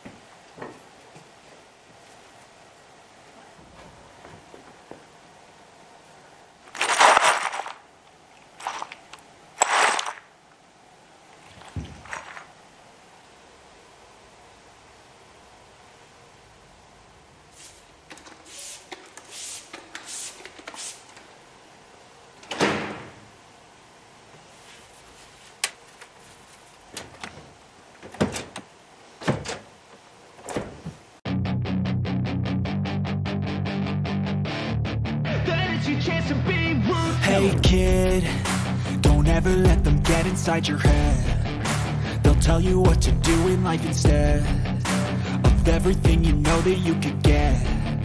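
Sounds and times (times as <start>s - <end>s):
bolts rattling in cardboard box: 6.7s - 7.8s.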